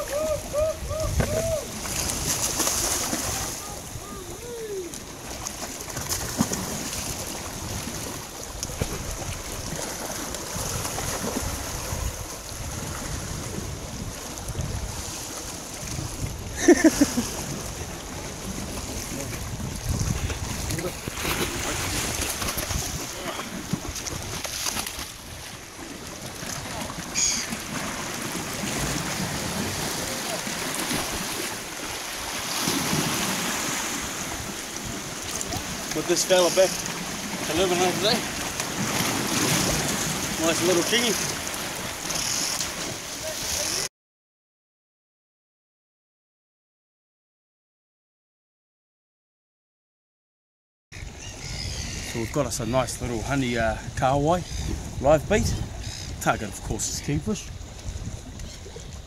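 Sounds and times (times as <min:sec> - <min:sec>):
wind buffeting microphone: 0:00.0 - 0:05.3, 0:06.0 - 0:27.0, 0:51.0 - 0:59.0
sea swell washing on rocks: 0:00.0 - 0:43.9.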